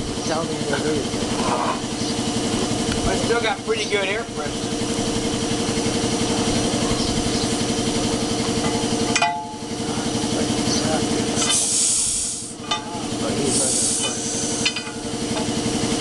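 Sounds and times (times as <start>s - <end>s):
engine running with fast pulse: 0.0s - 16.0s
metal clank: 8.6s - 9.7s, 12.6s - 13.0s
compressed air hiss: 11.4s - 12.6s, 13.5s - 14.7s.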